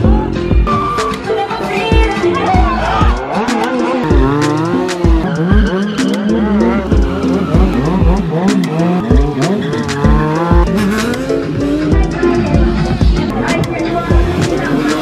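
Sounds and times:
background music with beat: 0.0 - 15.0
motorcycle engine revving: 2.0 - 15.0
tyre squealing: 2.8 - 11.1.

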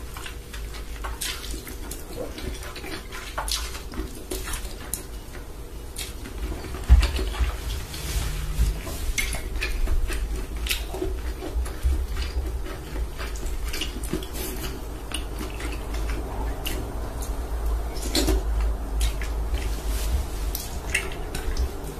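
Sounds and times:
noodles slurped and chewed: 0.0 - 21.9.

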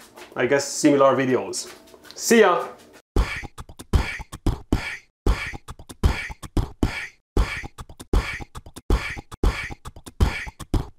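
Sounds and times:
beatboxed rhythm: 3.2 - 10.9.

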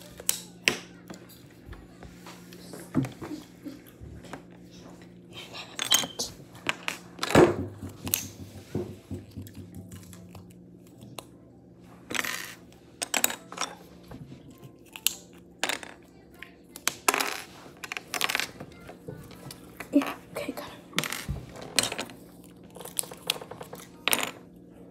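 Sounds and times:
knock on tabletop: 7.4 - 10.0.

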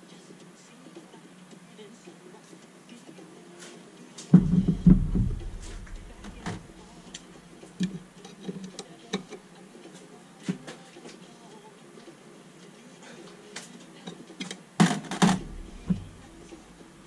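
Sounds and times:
heavy metal thuds on workbench: 4.4 - 6.7, 15.2 - 16.4
low steady hum: 4.4 - 8.3, 15.3 - 17.0.

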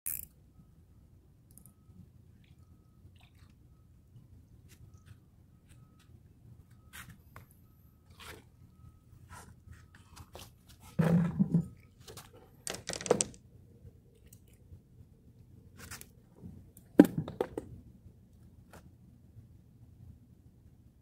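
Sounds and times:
fishing gear rustling and bumping: 9.4 - 13.4.

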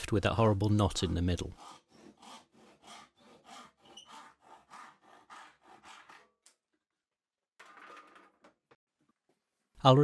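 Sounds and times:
handsaw cutting wood: 0.6 - 6.4.

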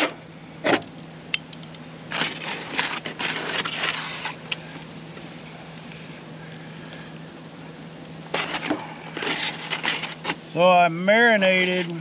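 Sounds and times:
aluminium foil crinkling: 2.1 - 4.4, 8.3 - 10.4.

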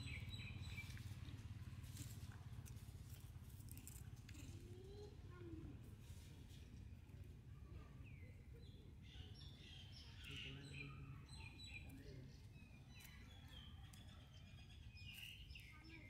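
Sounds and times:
low outdoor rumble: 0.0 - 9.0.

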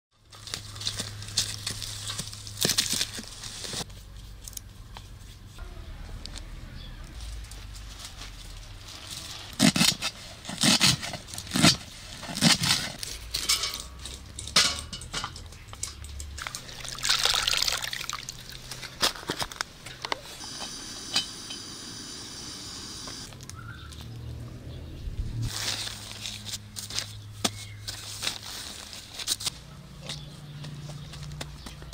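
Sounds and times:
water splashing into a bowl: 16.4 - 18.9.

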